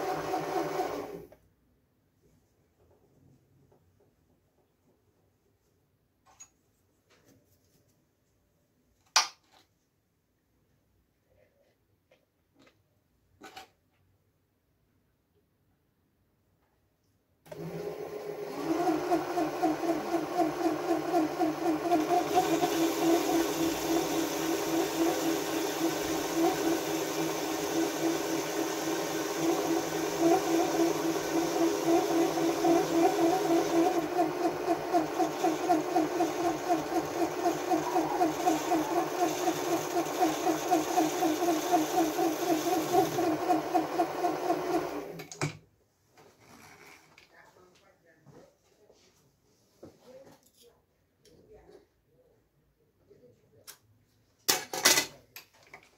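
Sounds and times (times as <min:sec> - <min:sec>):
lathe motor whine: 0:18.6 - 0:45.1.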